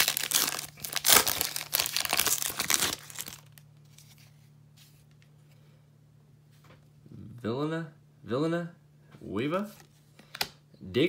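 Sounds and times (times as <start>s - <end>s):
foil wrapper crinkling and tearing: 0.0s - 3.6s.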